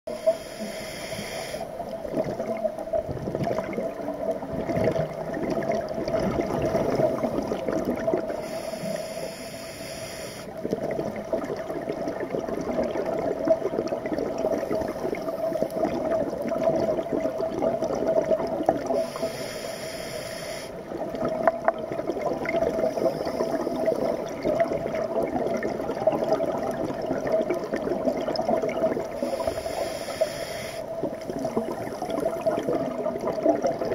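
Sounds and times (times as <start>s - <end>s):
regulator hissing inhalations: 0.1s - 1.8s, 8.4s - 10.6s, 19.0s - 20.8s, 22.9s - 24.2s, 29.2s - 30.9s
exhaled bubbles rumbling: 1.8s - 8.4s, 10.6s - 19.2s, 20.8s - 29.6s, 30.9s - 33.9s.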